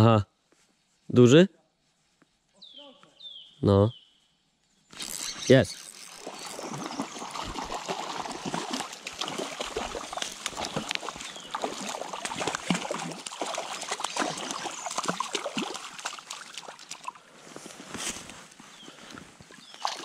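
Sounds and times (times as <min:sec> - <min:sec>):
fish splashing in water: 0:05.8 - 0:17.2, 0:19.6 - 0:20.0.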